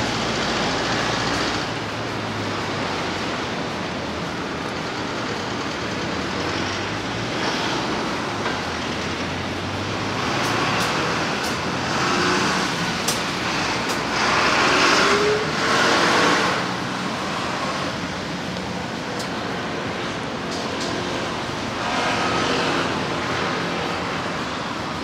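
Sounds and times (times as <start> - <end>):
cars passing: 0.0 - 25.0.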